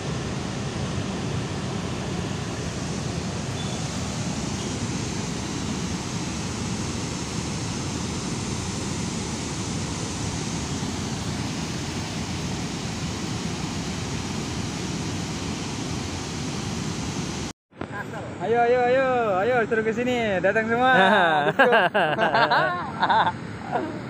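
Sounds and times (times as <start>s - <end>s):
river water rushing: 0.0s - 17.5s.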